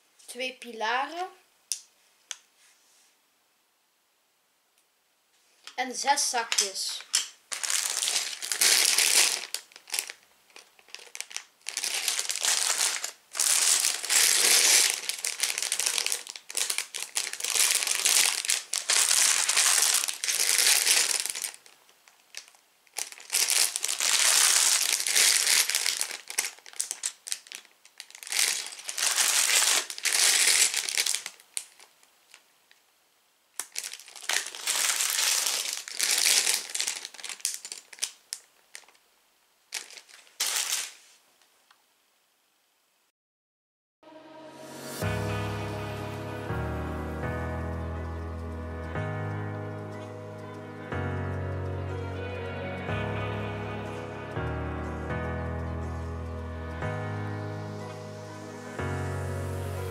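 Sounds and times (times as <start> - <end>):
plastic bags crinkling: 6.4 - 32.4, 33.6 - 39.0, 39.7 - 41.2.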